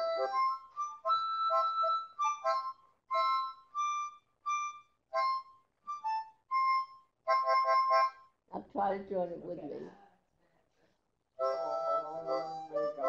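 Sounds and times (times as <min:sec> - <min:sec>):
instrument playing held notes: 0:00.0 - 0:08.2, 0:11.4 - 0:13.0.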